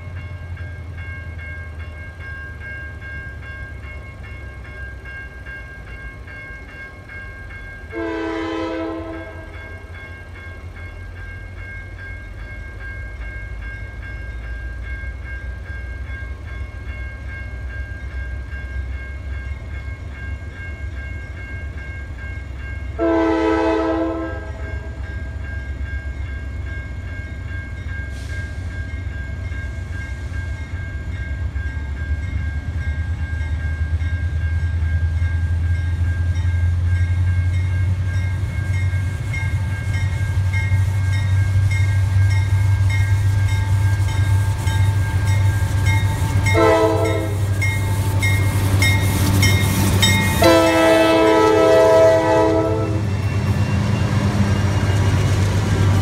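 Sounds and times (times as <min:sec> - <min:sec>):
train horn blast: 0:07.9 - 0:09.7, 0:23.0 - 0:24.9, 0:46.2 - 0:48.1, 0:50.3 - 0:53.2
locomotive engine rumble: 0:24.4 - 0:56.0.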